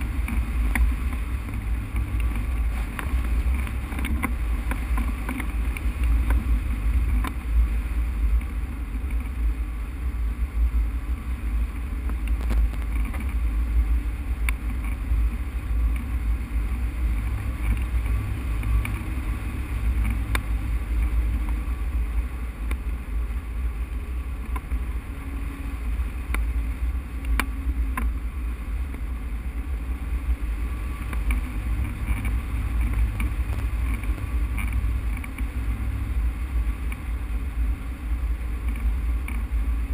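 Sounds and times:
faint ticks: 0:00.0 - 0:07.4, 0:08.3 - 0:09.4, 0:12.0 - 0:13.4, 0:14.4 - 0:15.2, 0:15.8 - 0:16.2, 0:17.1 - 0:19.2, 0:19.8 - 0:21.7, 0:22.6 - 0:23.0, 0:23.9 - 0:24.9, 0:26.2 - 0:26.6, 0:27.2 - 0:28.2, 0:30.9 - 0:37.2, 0:38.5 - 0:39.9.

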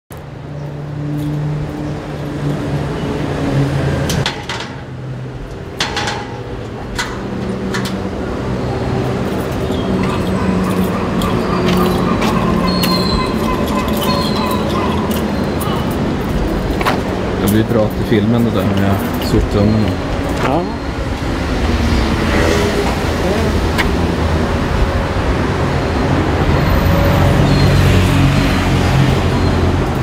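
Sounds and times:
clicks and knocks: 0:05.8 - 0:08.0
vehicle engine running: 0:06.4 - 0:26.7.

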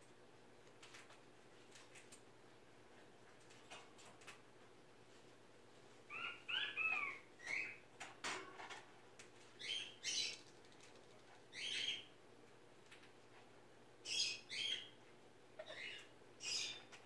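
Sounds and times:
cockatoo chirps and squawks: 0:06.1 - 0:07.8, 0:11.5 - 0:12.1, 0:15.6 - 0:17.0.

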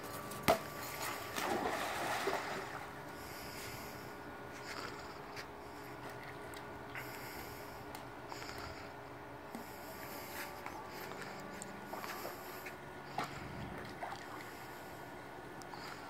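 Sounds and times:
water lapping: 0:00.8 - 0:04.8, 0:09.6 - 0:15.2
dog splashing into water: 0:01.3 - 0:02.8.

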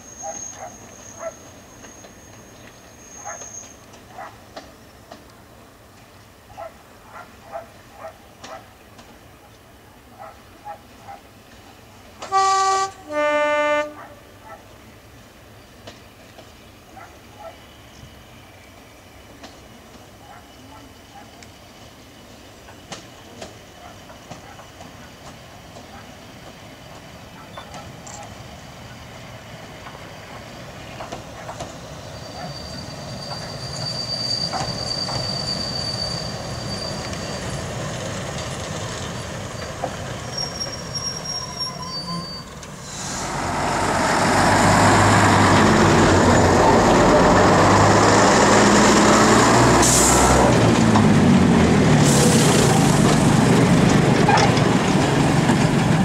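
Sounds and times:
high squeal of train wheels: 0:00.0 - 0:05.3, 0:16.6 - 0:50.6
diesel train rumbling: 0:00.0 - 0:56.0
train passing close by: 0:00.0 - 0:56.0.

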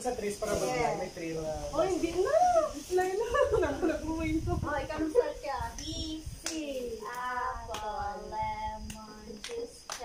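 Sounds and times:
people talking and chanting: 0:00.0 - 0:10.0
hand claps: 0:06.4 - 0:08.0, 0:08.9 - 0:10.0.

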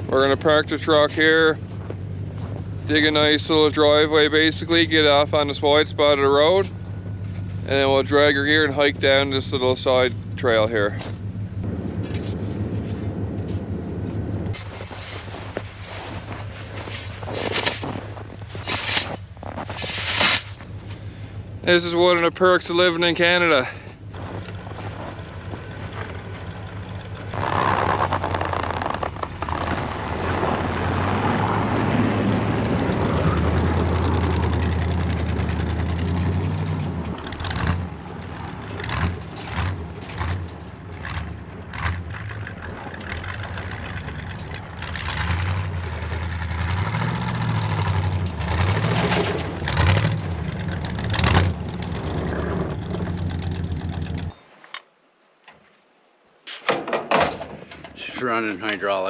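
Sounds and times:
truck engine revving: 0:00.0 - 0:54.3
snow spraying from tyres: 0:14.5 - 0:20.6.

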